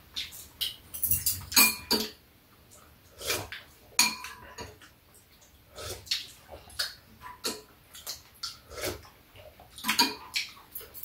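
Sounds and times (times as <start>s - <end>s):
chopsticks and spoons clinking bowls: 0.6s - 2.2s, 9.9s - 11.0s.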